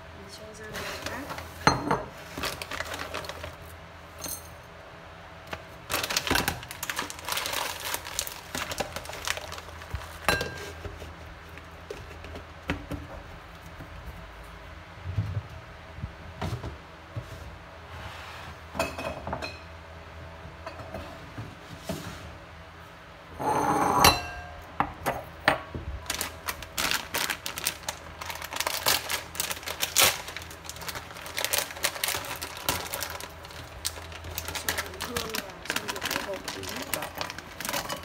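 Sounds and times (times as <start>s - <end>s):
glass bowls clinking: 4.2s - 4.6s, 18.8s - 19.7s, 23.4s - 24.6s
glass scraping on countertop: 23.4s - 24.4s.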